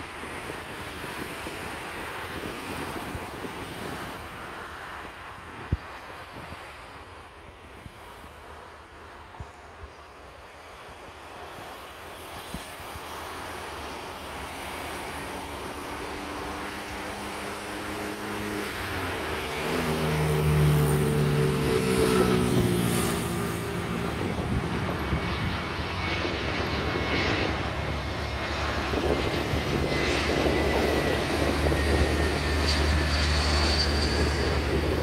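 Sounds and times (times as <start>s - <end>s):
jet engines droning: 0.0s - 35.0s
deep jet rumble: 13.8s - 35.0s.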